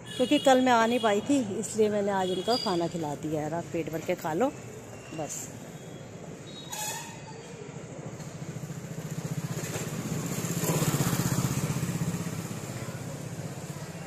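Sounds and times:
motorcycle passing by: 8.2 - 14.0.

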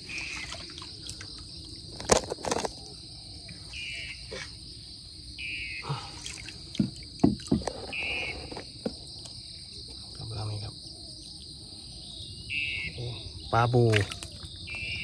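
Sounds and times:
water splashes: 0.0 - 2.6, 6.0 - 8.0, 13.7 - 15.0
insects droning: 0.0 - 15.0.

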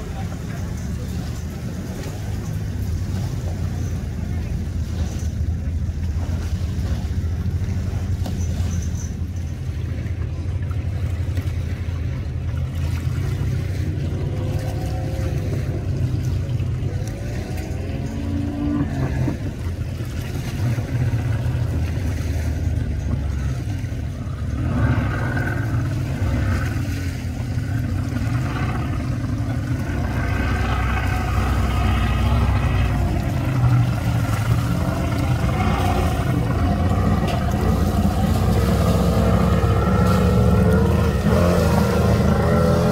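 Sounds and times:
speedboat engine rumbling: 0.0 - 42.9.

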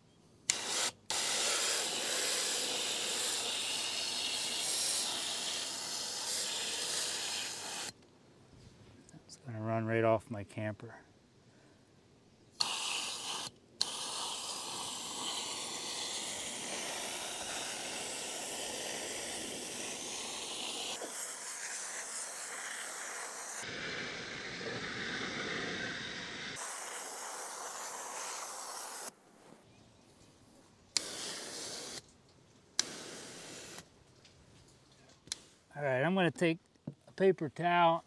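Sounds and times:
water spraying from garden hose: 0.5 - 8.0, 12.6 - 29.1, 31.0 - 32.0, 32.8 - 33.8.

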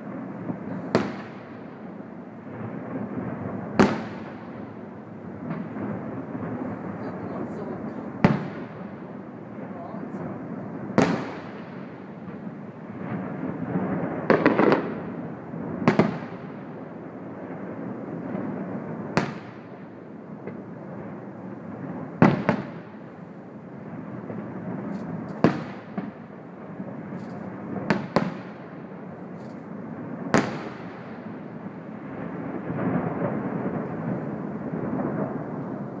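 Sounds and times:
firework shells bursting: 0.4 - 17.0, 24.2 - 31.6.

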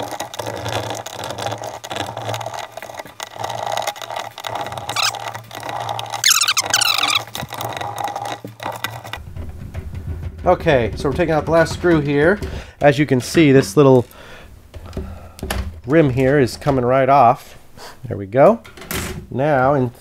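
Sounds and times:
screws clicking and rattling: 0.0 - 5.2
squeaky sped-up voice: 4.9 - 5.2, 6.2 - 7.3.

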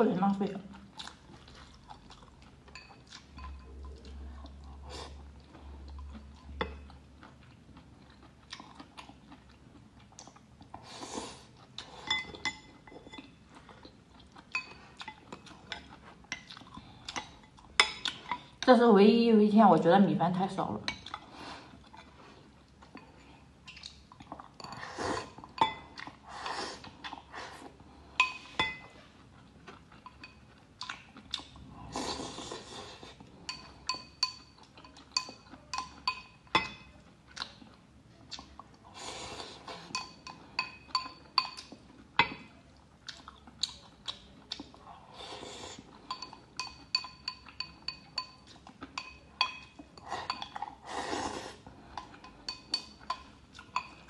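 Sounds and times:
chopsticks clinking glass bowl: 33.5 - 37.0, 39.8 - 42.5, 46.1 - 50.6, 52.2 - 54.0.

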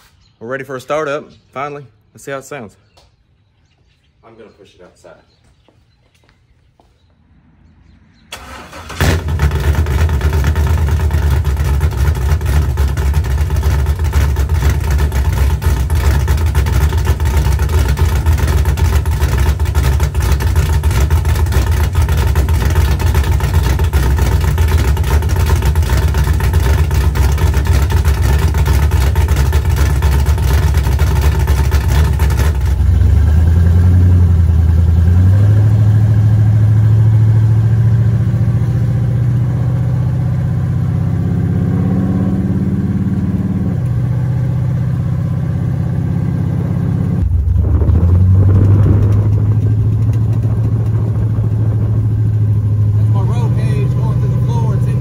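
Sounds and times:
engine cranking and starting: 8.3 - 32.8
engine idling: 8.4 - 35.3, 47.1 - 55.0.

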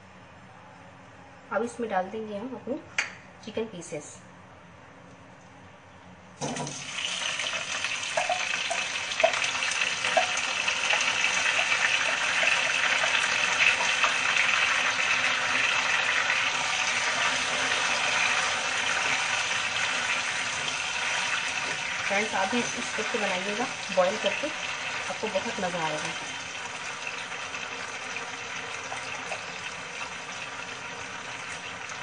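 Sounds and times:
chicken sizzling in hot oil: 6.5 - 32.0.

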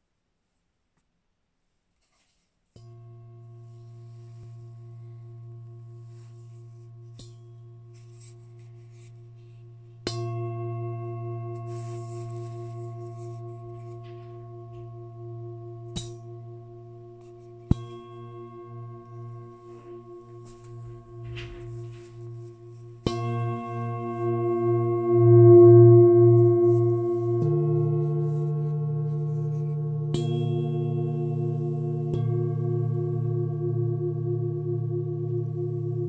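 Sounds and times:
metal singing bowl ringing: 10.0 - 36.0.

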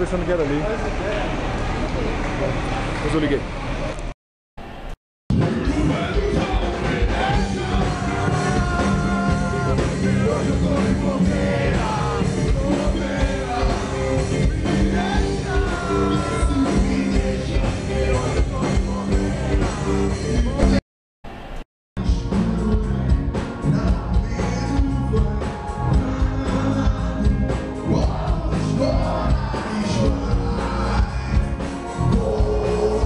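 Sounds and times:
live rock band playing: 5.3 - 20.8, 22.0 - 33.0
man singing into microphone: 5.4 - 20.8, 22.0 - 33.0.

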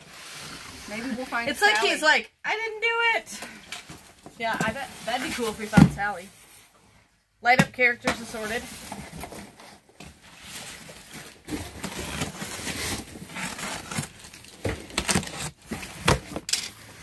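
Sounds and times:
cardboard scraping and rustling: 8.2 - 17.0
box cutter slitting tape: 14.9 - 16.2.

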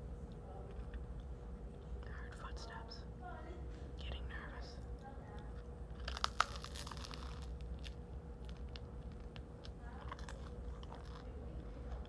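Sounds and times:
person chewing bread: 5.0 - 12.0.

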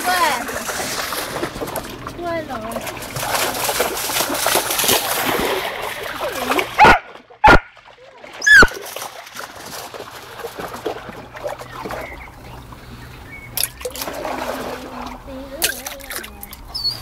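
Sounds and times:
stream trickling and splashing: 0.0 - 17.0
dog yelping: 6.8 - 7.7, 8.4 - 8.8, 16.7 - 17.0.

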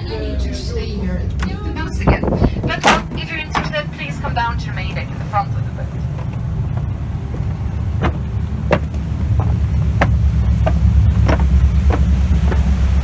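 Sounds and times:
steamship engine rumble: 0.0 - 13.0
wind on microphone: 1.5 - 3.5.

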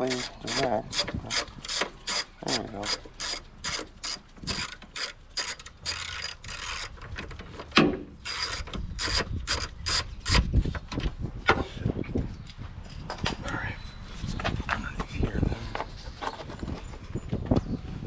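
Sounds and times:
hand ratchet clicking: 0.0 - 7.0.

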